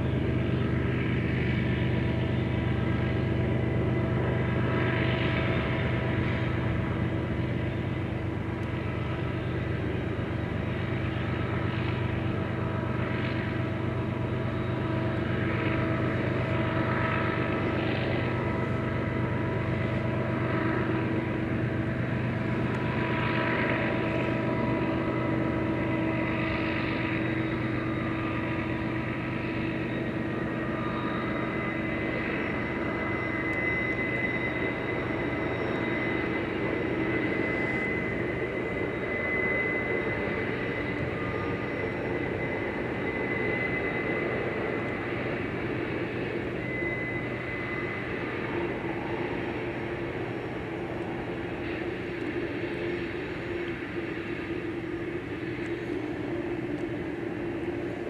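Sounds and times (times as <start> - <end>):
freight train rumbling: 0.0 - 58.0
train wheels squealing: 0.0 - 58.0.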